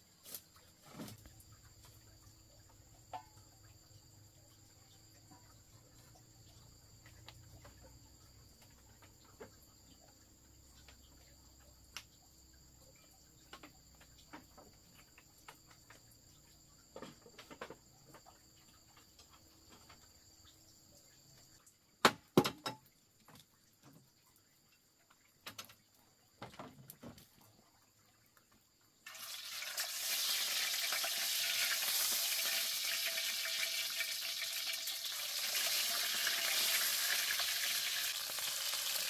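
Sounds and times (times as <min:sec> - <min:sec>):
crickets and insects droning: 0:00.0 - 0:39.0
small knocks: 0:16.9 - 0:20.2.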